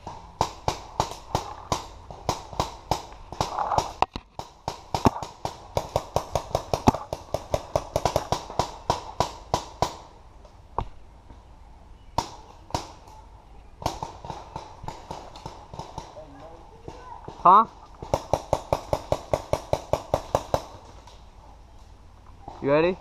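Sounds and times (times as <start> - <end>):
paintball marker firing shots: 0.4 - 10.1.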